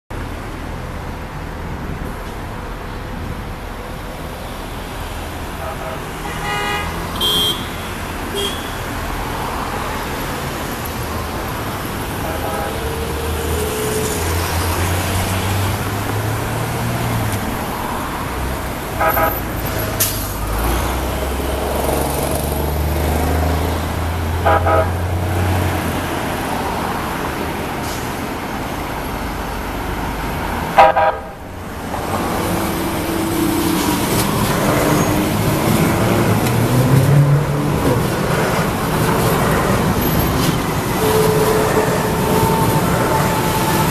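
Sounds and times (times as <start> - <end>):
road traffic: 0.1 - 43.9
light-rail train rumbling: 8.2 - 43.9
train horn toots: 12.2 - 13.1, 19.0 - 19.5, 24.4 - 25.0, 30.8 - 31.4, 40.0 - 43.9.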